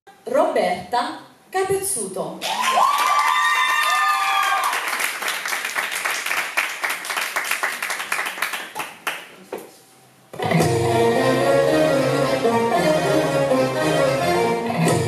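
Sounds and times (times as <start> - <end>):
person cheering: 2.4 - 4.9
audience clapping: 2.4 - 9.5.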